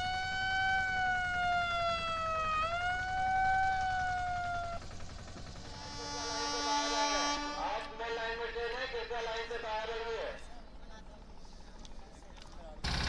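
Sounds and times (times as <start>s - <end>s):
siren wailing: 0.0s - 4.9s.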